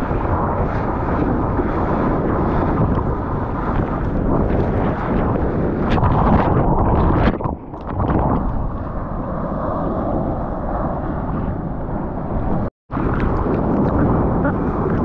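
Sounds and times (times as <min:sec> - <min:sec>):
wind buffeting microphone: 0:00.0 - 0:15.0
sea water rushing and splashing: 0:12.4 - 0:15.0.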